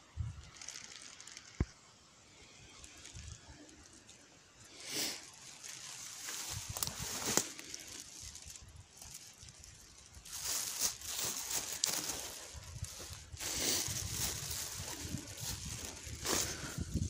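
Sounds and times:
leaves and grass rustling: 0.0 - 17.0
low microphone rumble: 10.4 - 17.0.

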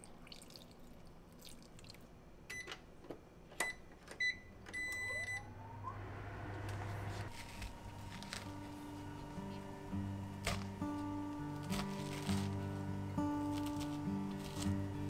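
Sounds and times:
low hum of heating hob: 0.0 - 15.0
cooktop beeps: 3.6 - 6.1.

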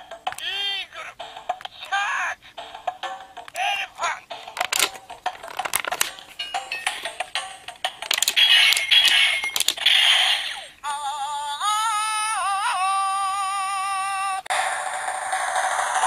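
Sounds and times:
toy clicky sound effects: 3.4 - 5.0, 6.5 - 10.7.

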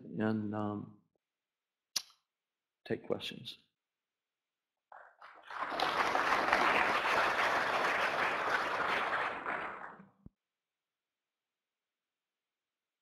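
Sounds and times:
audience applauding: 5.0 - 10.2.

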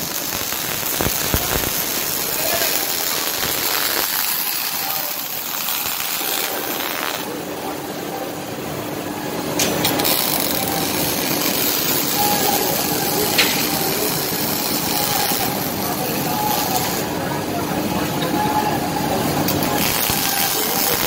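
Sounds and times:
welding arc hissing: 0.0 - 7.4, 9.6 - 17.1, 19.4 - 21.0.

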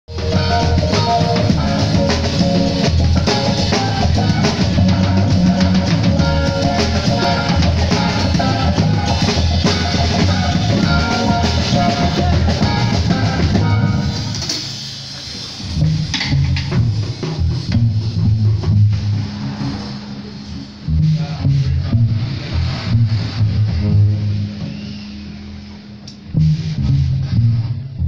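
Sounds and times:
pitched melodic notes: 0.1 - 14.4
drum kit playing: 0.1 - 28.0
rock music: 0.1 - 28.0.

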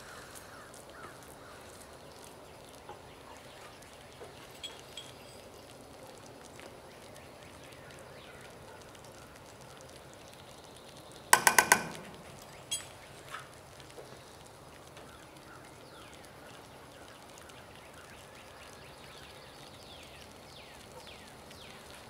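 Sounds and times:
utensil knocking on metal saucepan: 11.4 - 12.5.

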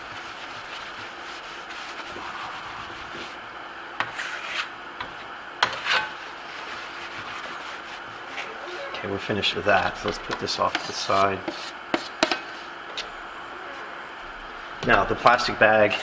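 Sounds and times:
rag rubbing on plaster: 0.0 - 3.4, 4.0 - 4.7, 5.6 - 8.7, 9.7 - 12.3
sharp scrapes: 4.0 - 4.7.

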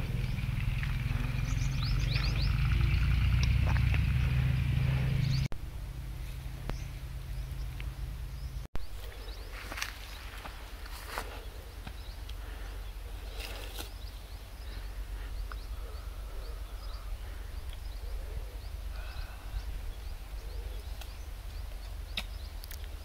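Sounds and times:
birds chirping: 0.0 - 5.5, 6.2 - 23.0
steady low rumble: 0.0 - 23.0.

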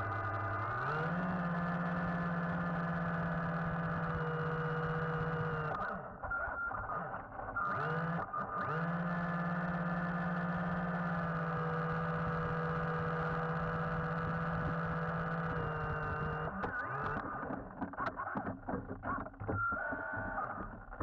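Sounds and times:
electric motor humming underwater: 0.0 - 6.0, 7.7 - 17.9.

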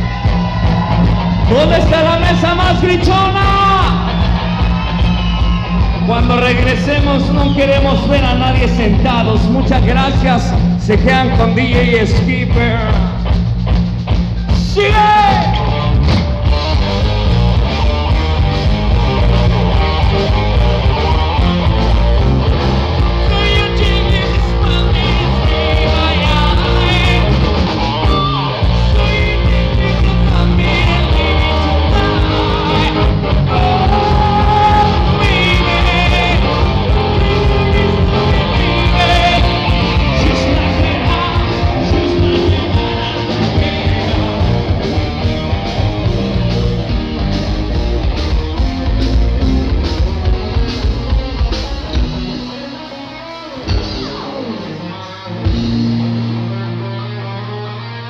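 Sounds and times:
live rock band playing: 0.0 - 58.0
man singing into microphone: 6.1 - 13.2, 23.2 - 27.5, 28.2 - 44.7.

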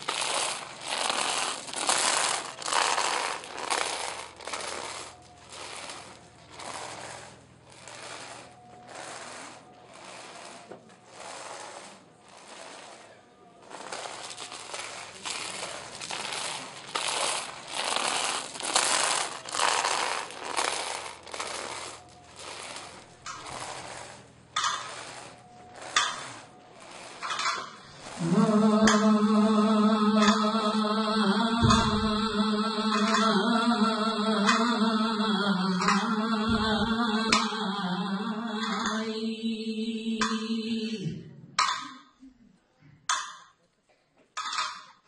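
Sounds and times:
chains dragging and clinking on paving: 0.0 - 29.0.

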